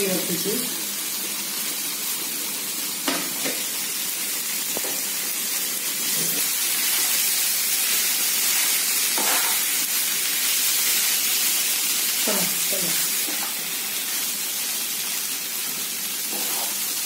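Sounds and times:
vegetables sizzling in a pan: 0.0s - 17.0s
spatula knocking and scraping pan: 9.2s - 9.6s.

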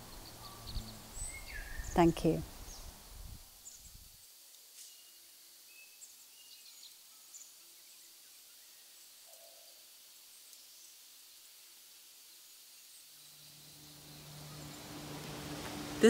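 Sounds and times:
steady soft hiss: 0.0s - 16.0s
high bird chirps: 0.1s - 2.1s.

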